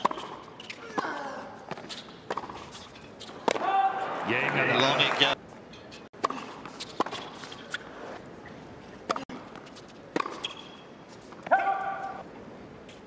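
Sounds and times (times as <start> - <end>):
shoes squeaking: 0.0 - 3.7, 5.7 - 12.2
tennis balls struck by rackets: 0.0 - 3.8, 6.1 - 7.8, 9.0 - 10.8.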